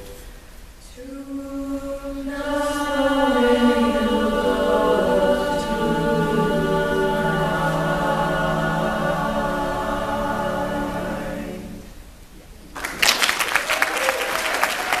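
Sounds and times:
choir singing a cappella: 0:00.8 - 0:12.2
audience applause: 0:12.7 - 0:15.0.

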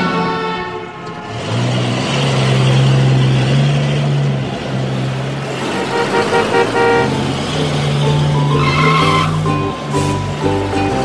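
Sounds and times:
short horn toots: 0:05.7 - 0:07.3.

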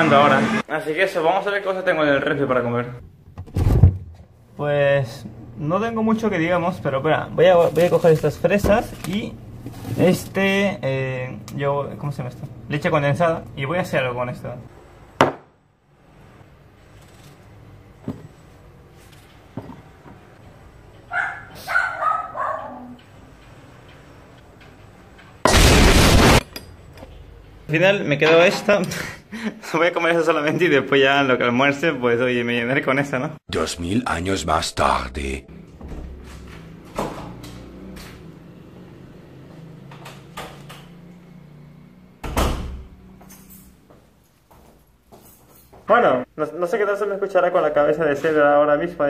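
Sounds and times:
dog barking: 0:21.1 - 0:23.0
door opening and closing: 0:42.2 - 0:43.0.

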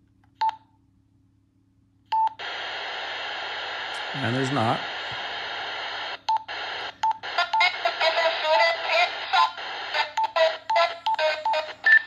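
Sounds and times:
radio static: 0:02.4 - 0:12.0
voice from radio speaker: 0:03.9 - 0:05.4, 0:07.2 - 0:12.0.

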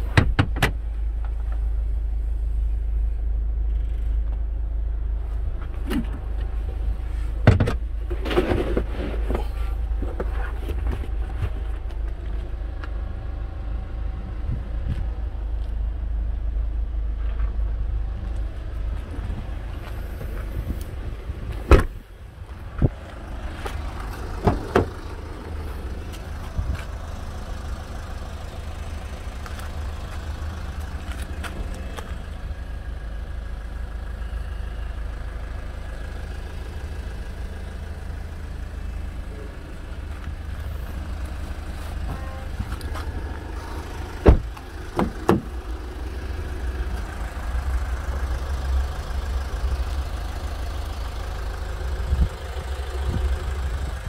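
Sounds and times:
car tailgate shutting: 0:21.6 - 0:22.0, 0:23.6 - 0:25.1, 0:44.2 - 0:45.5
car door latch clicks: 0:21.7 - 0:22.0, 0:44.2 - 0:45.5.

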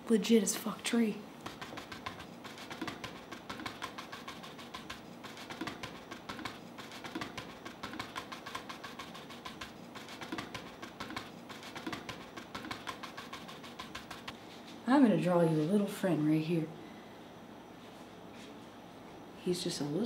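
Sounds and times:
paintbrush tapping on canvas: 0:01.4 - 0:14.4.

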